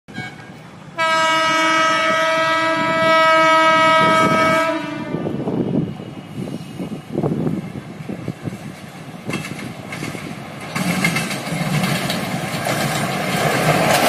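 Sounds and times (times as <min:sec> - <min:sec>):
train horn long blast: 0:00.1 - 0:05.5
low rumble of train: 0:00.1 - 0:14.0.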